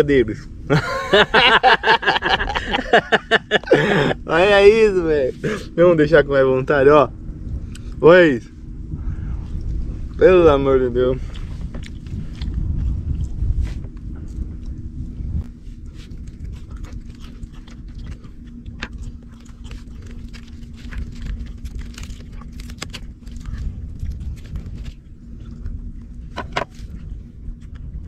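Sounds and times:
faint steady hum: 0:00.0 - 0:28.0
low uneven rumble: 0:00.0 - 0:28.0
chewing: 0:11.2 - 0:28.0.

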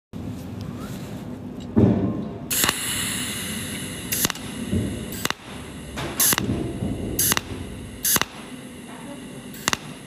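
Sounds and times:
welding machine pulsed arc bursts: 0:02.5 - 0:10.0.

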